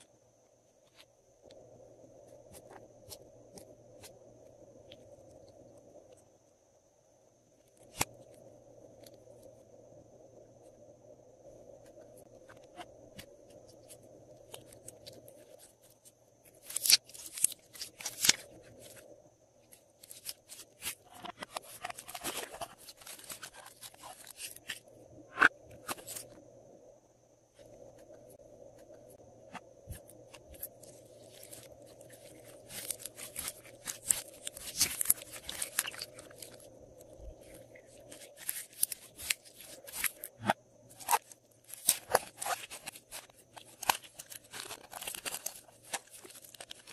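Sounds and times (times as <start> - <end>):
slime clicking and crackling: 31.3 - 36.6.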